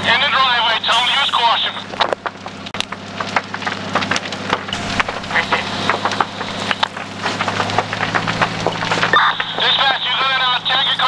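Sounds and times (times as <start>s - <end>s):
fire crackling and popping: 0.0s - 11.0s
low engine hum: 0.0s - 11.0s.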